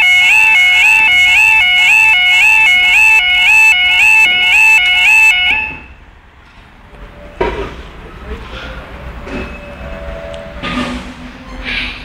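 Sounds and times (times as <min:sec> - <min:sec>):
warbling level crossing alarm: 0:00.0 - 0:05.9.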